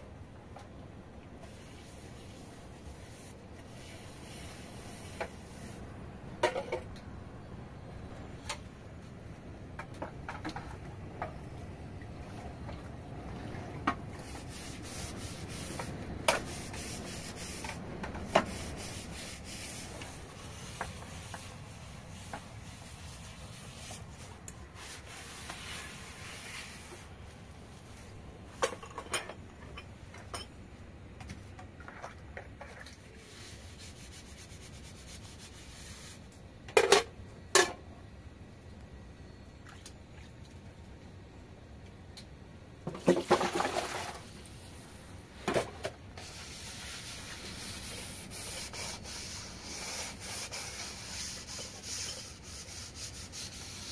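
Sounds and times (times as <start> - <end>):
rubbing and scraping: 14.2 - 27.1, 46.2 - 53.9.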